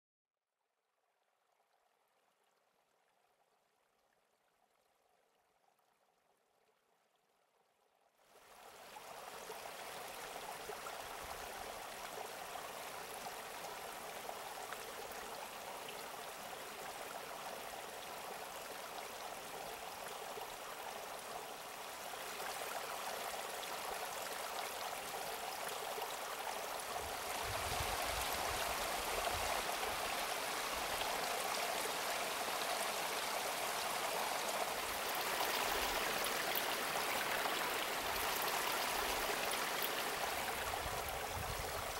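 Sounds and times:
running water rushing: 8.5s - 41.9s.

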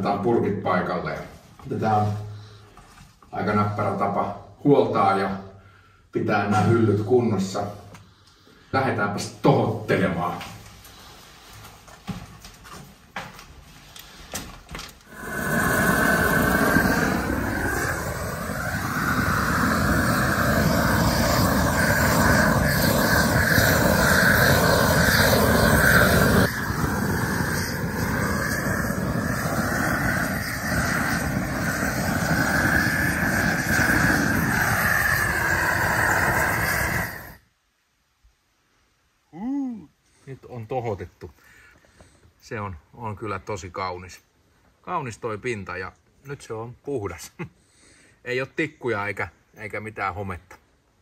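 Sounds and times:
gas burner flame rushing: 13.9s - 37.4s.

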